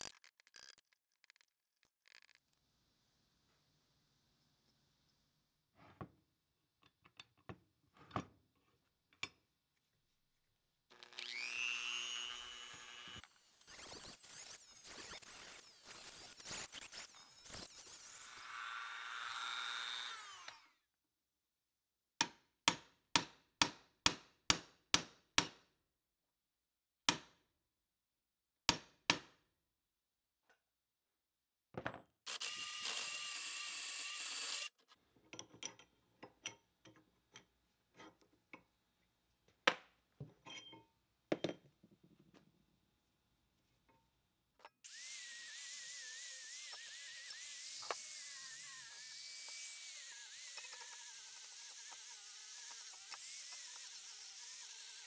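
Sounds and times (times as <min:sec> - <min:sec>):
rotary tool grinding metal: 0:11.0 - 0:20.7, 0:32.3 - 0:34.8, 0:44.8 - 0:55.0.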